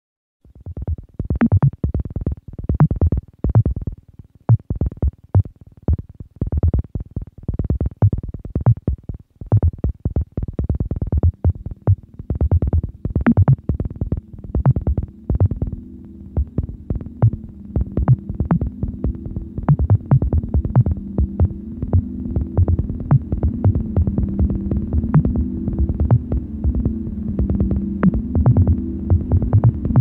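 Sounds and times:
low sustained drone: 13.6 - 30.0.

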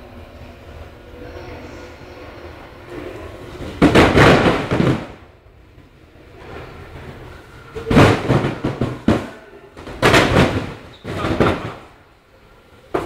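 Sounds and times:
cardboard boxes crashing onto floor: 3.8 - 5.2, 7.9 - 11.9.

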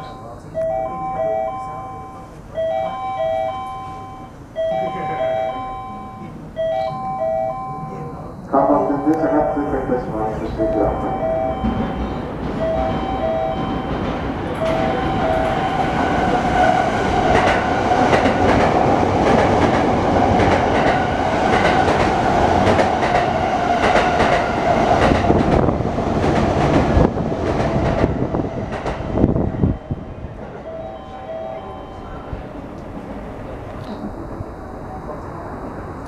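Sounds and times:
two-tone beeps: 0.0 - 8.1, 10.6 - 12.0, 30.6 - 32.4
train wheels clattering over rails: 11.3 - 30.7.

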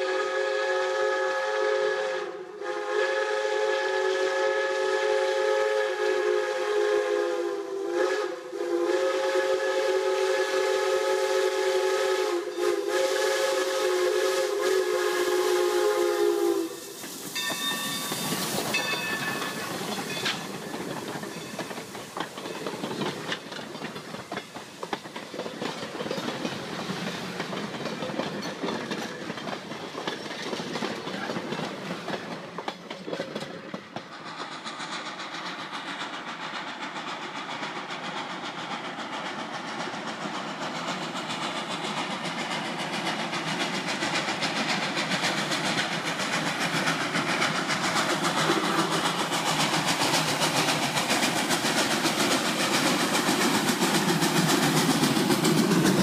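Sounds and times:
steam locomotive whistle: 0.0 - 20.6
steam hiss: 0.0 - 56.0
train rumbling past: 0.0 - 56.0
wheels clicking over rail joints: 16.9 - 56.0.

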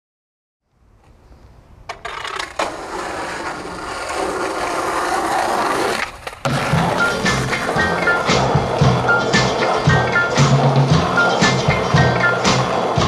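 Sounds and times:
skateboard wheels rolling on asphalt: 0.8 - 13.0
skateboard clicks: 1.0 - 10.4
low beat and pitched notes: 6.5 - 13.0.

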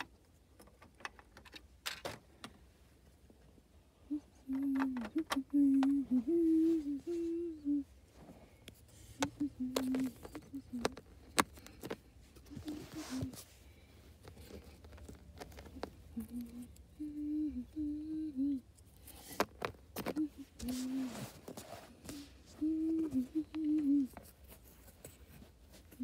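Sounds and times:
person humming: 4.0 - 8.0, 9.1 - 11.0, 12.4 - 13.4, 15.7 - 18.7, 20.0 - 21.4, 22.0 - 24.2.

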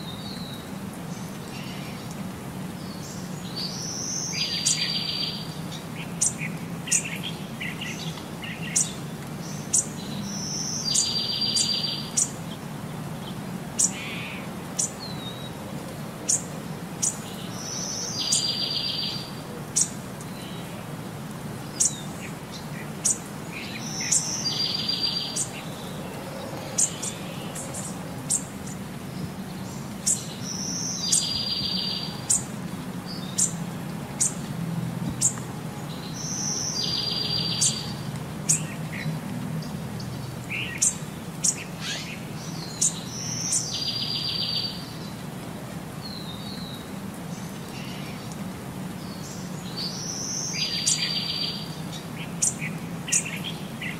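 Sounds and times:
bird chirping: 2.8 - 12.4, 21.8 - 32.5, 35.2 - 38.8.

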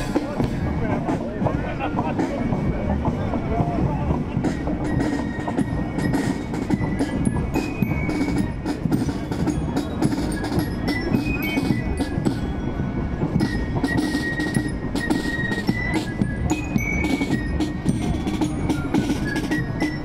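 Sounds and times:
marching drums: 0.0 - 20.0.

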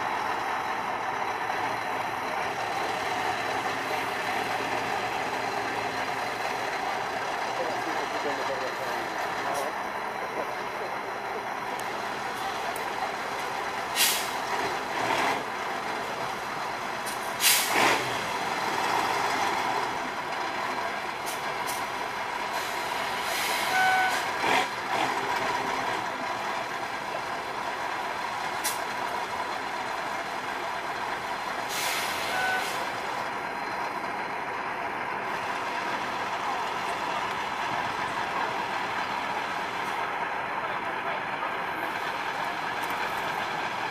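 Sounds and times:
diesel truck engine running: 0.0 - 43.9
air brake hisses: 13.9 - 14.4, 17.4 - 17.8, 22.6 - 24.2, 31.7 - 32.9
short beep: 23.7 - 24.2, 32.3 - 32.8.

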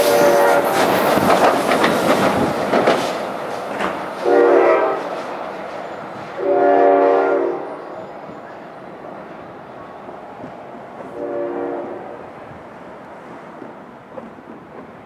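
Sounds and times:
train air horn blasts: 0.0 - 1.0, 4.2 - 5.1, 6.4 - 8.0, 11.1 - 12.2
train wheels clattering on rails: 0.0 - 6.6, 12.5 - 15.0.

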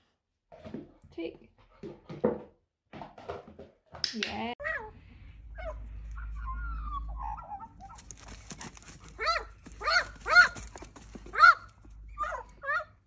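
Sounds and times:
bark-like animal calls: 9.0 - 13.0.

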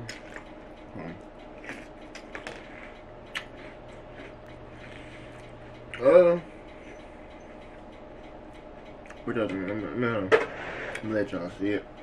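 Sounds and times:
person chewing crunchy cereal: 0.0 - 6.0.

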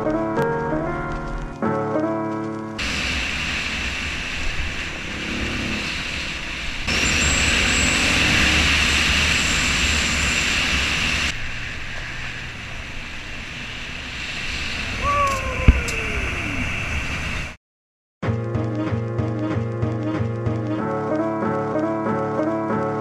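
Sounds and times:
road rumble: 2.4 - 17.6
wind rushing over microphone: 2.8 - 17.6.

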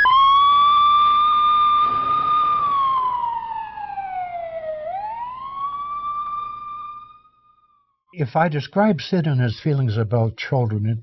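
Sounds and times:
siren wailing: 0.0 - 7.9.

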